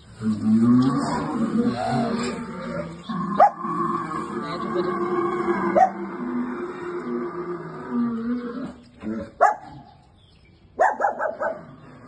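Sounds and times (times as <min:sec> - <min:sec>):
dog barking: 0:09.4 - 0:09.7, 0:10.8 - 0:11.7.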